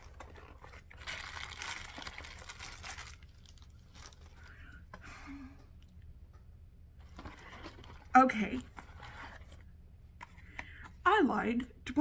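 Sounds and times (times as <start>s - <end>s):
packaging crinkling and rustling: 0.0s - 4.8s, 7.0s - 9.7s.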